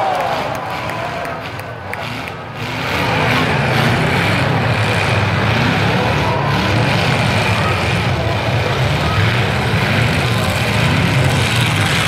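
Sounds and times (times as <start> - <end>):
car engines revving: 0.0 - 12.0.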